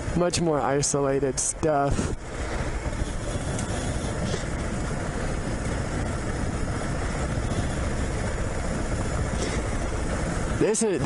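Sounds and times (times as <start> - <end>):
trail noise: 0.0 - 11.0
wind: 0.0 - 11.0
motorcycle engine: 2.2 - 11.0.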